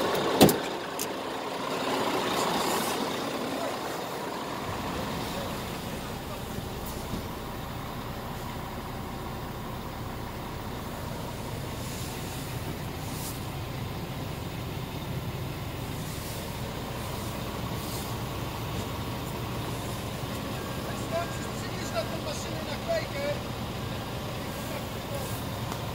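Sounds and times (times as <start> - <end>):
diesel engine idling: 0.0 - 25.9
faint rustles: 10.8 - 14.0, 15.8 - 20.9.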